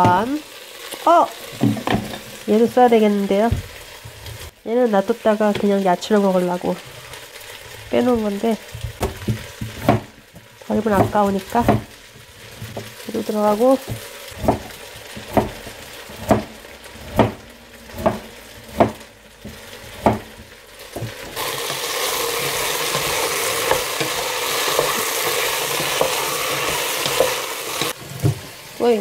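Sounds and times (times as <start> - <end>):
vegetables sizzling in pot: 0.0 - 29.0
wooden spoon stirring: 6.8 - 28.6
knife chopping on cutting board: 8.9 - 10.1, 10.9 - 11.9, 13.9 - 21.4.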